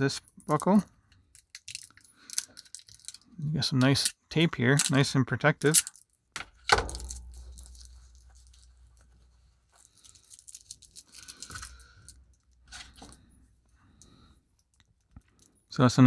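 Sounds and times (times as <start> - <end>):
plastic film crinkling: 6.8 - 13.1.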